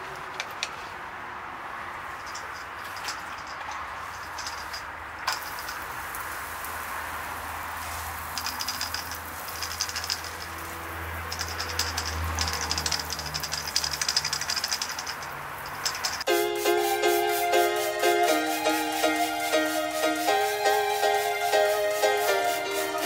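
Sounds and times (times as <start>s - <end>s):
fast crackly rattling: 2.2s - 6.0s, 8.3s - 16.3s
sprayer hiss: 16.0s - 23.0s
music: 16.3s - 23.0s.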